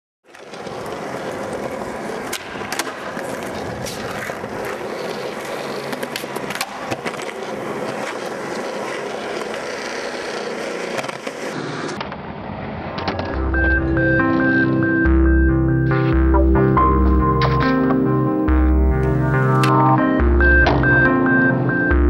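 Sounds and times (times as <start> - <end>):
skateboard wheels rolling on concrete: 0.2 - 15.0
skateboard clacking on curb: 0.3 - 11.6.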